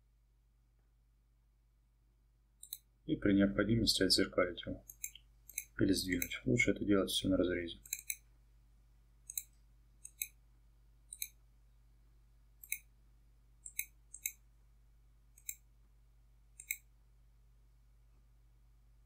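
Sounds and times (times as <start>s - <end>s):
faint low hum: 0.0s - 19.0s
computer mouse clicks: 2.6s - 2.9s, 4.8s - 6.4s, 7.8s - 8.3s, 9.2s - 10.4s, 11.1s - 11.4s, 12.6s - 12.9s, 13.6s - 14.4s, 15.4s - 15.7s, 16.6s - 16.9s.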